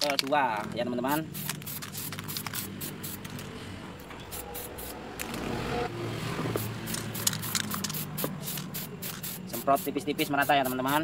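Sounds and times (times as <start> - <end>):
spray can hissing: 1.1 - 3.4, 4.2 - 5.4, 6.5 - 11.0
spray can clicks: 6.9 - 9.4.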